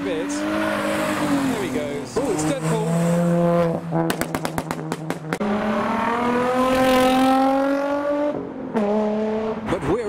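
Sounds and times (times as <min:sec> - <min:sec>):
car engine revving: 0:00.0 - 0:10.0
exhaust pops and cracks: 0:04.1 - 0:05.4.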